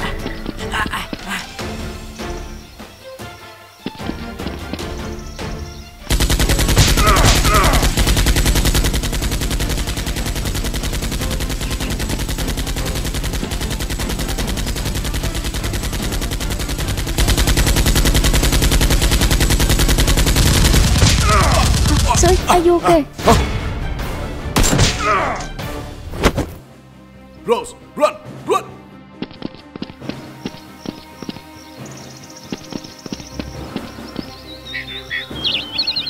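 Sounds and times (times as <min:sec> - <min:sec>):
rapid automatic gunfire: 0:06.1 - 0:22.5.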